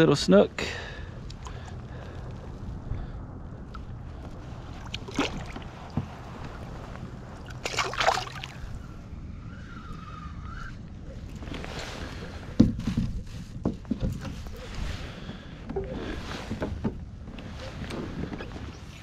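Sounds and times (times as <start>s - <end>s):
wind: 0.0s - 19.0s
lapping water: 1.2s - 2.4s
fish splashing in water: 4.8s - 5.8s, 7.4s - 8.8s.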